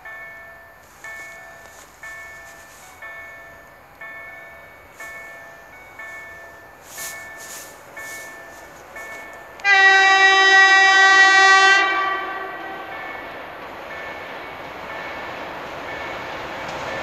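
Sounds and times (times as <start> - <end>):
train horn blast: 8.1 - 13.0.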